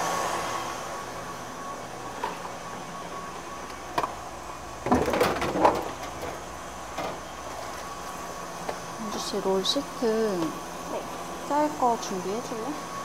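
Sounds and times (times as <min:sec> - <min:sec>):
clatter of knocks and rattles: 0:04.8 - 0:06.4.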